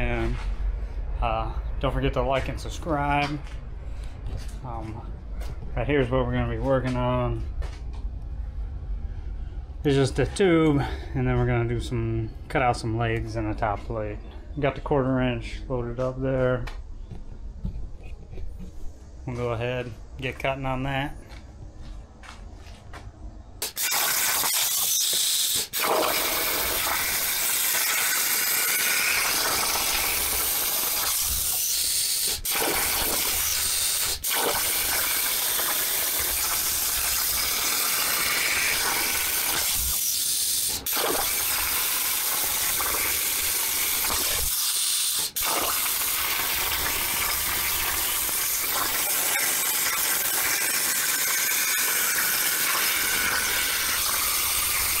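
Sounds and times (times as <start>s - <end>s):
plasma cutter hissing: 23.6s - 55.0s.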